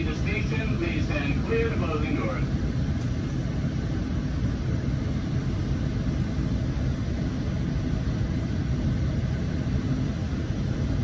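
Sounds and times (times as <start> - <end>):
diesel train rumbling: 0.0 - 6.7.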